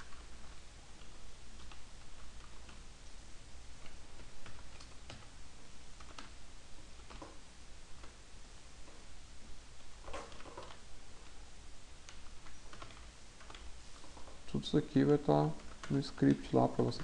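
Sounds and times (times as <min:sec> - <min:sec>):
keyboard typing: 0:00.0 - 0:02.9, 0:03.8 - 0:05.3, 0:06.0 - 0:06.4, 0:07.0 - 0:07.4, 0:10.0 - 0:11.4, 0:12.0 - 0:17.0
low background hum: 0:00.0 - 0:17.0.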